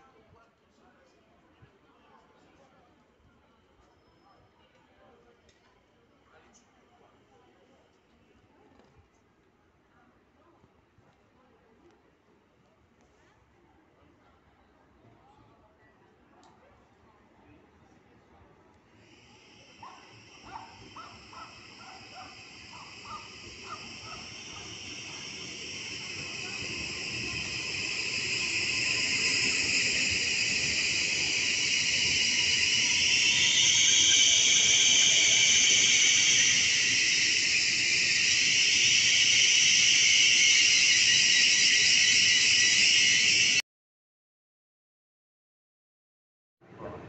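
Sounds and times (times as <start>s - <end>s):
electric train approaching: 18.9s - 43.6s
high-pitched wavering squeal: 19.2s - 43.6s.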